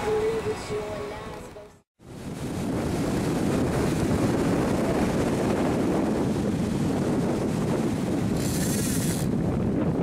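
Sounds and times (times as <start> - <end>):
surf rushing: 2.0 - 9.4
wind buffeting microphone: 2.0 - 10.0.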